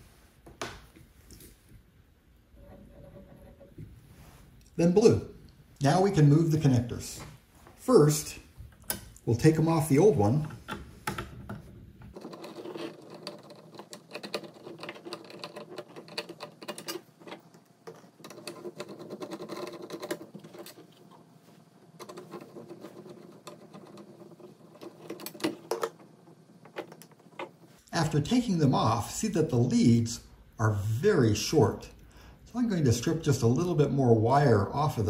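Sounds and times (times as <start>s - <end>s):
small metallic clicks and rattles: 12.1s - 20.8s.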